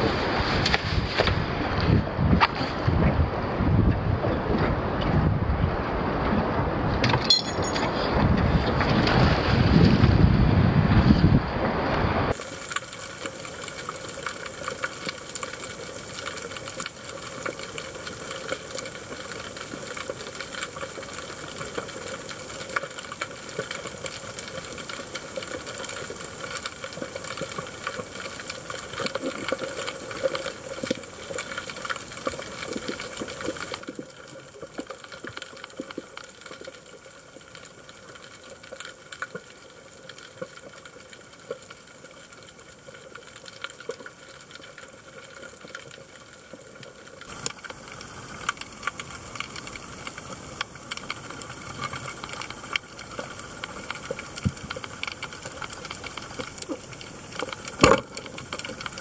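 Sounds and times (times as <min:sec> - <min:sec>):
crackling clicks: 0:12.3 - 0:59.0
underwater hiss and hum: 0:12.3 - 0:59.0.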